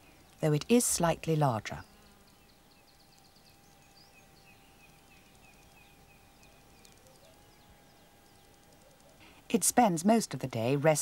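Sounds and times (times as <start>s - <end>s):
low hum and hiss: 0.0s - 11.0s.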